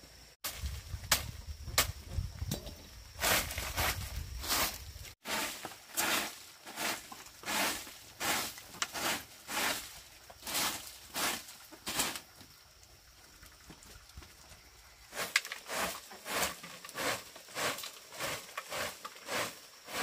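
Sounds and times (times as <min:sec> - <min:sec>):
broom sweeping dirt floor: 0:00.0 - 0:12.6, 0:15.0 - 0:20.0.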